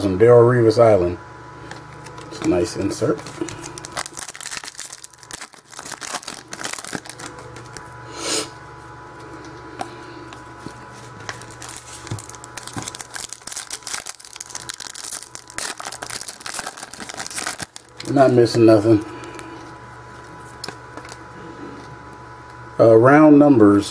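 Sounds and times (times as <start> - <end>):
card wrappers crinkling: 1.7 - 7.9, 10.6 - 19.5
wrapper ripping: 2.0 - 7.8, 11.3 - 18.6.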